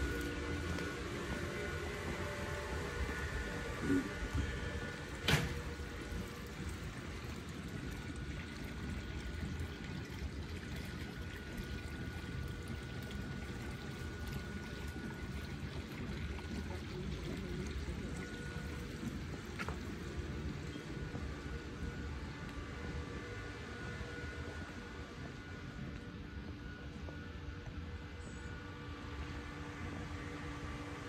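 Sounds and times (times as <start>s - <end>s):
water trickling: 4.7s - 22.4s.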